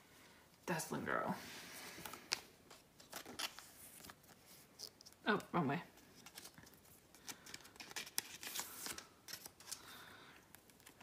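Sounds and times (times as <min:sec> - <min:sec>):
card rustling into plastic sleeve: 0:01.9 - 0:05.2, 0:05.9 - 0:11.0.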